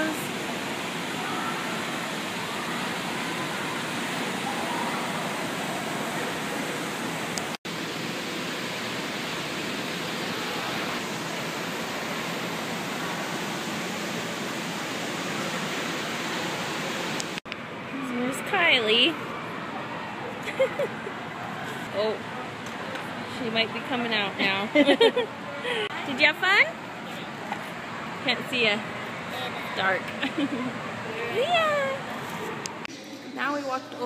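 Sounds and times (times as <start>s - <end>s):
water splashing in pool hall: 0.0s - 17.4s.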